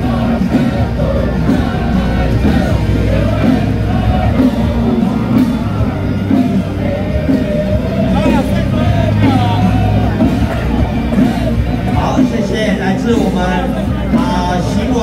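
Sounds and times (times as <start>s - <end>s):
loud music with singing voice: 0.0s - 15.0s
steady bass line: 0.0s - 15.0s.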